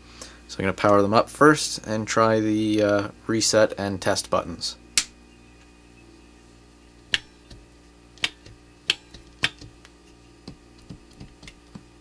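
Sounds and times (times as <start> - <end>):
internal contacts snapping: 5.0 - 5.7, 7.1 - 11.9.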